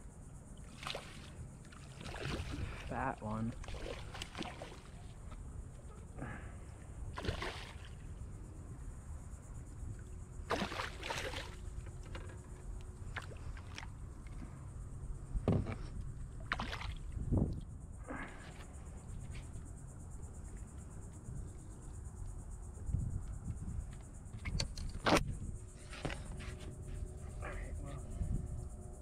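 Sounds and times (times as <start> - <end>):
low steady rumble: 0.0 - 29.0
fish splashing at surface: 3.5 - 5.0, 7.2 - 8.0, 10.5 - 11.6, 16.5 - 17.2.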